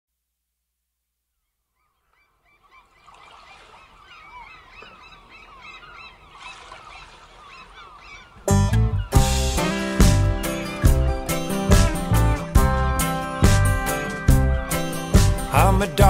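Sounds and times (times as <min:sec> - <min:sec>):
birds squawking: 0:01.8 - 0:12.4
band playing: 0:08.5 - 0:16.0.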